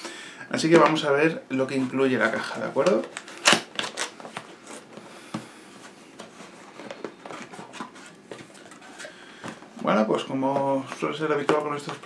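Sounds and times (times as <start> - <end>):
cardboard and paper rustling: 5.8 - 9.8.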